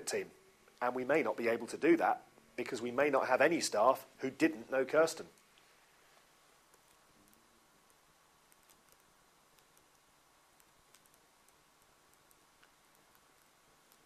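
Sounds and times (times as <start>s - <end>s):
steady hiss: 0.0s - 14.0s
faint clicks: 5.3s - 14.0s.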